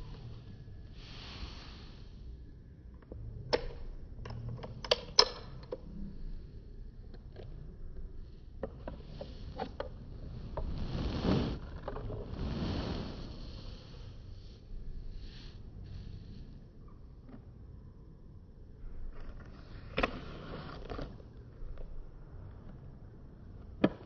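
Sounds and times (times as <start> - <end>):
soft rustling rush: 9.0 - 14.7.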